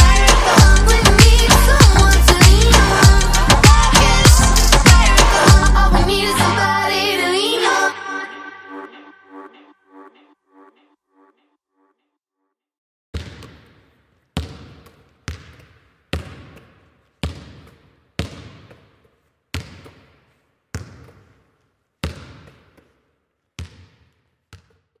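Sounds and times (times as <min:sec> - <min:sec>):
basketball bouncing in gym: 0:13.1 - 0:25.0.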